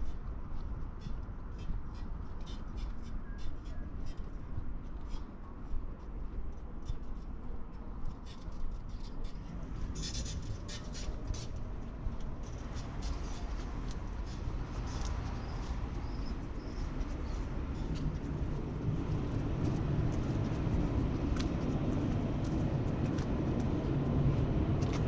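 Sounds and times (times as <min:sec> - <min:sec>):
low city rumble: 0:00.0 - 0:25.0
footsteps on cobblestones: 0:11.5 - 0:25.0.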